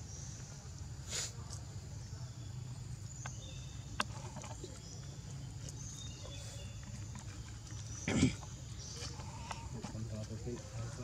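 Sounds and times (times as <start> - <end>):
steady high hiss: 0.0 - 2.3
faint bird chirps: 0.0 - 11.0.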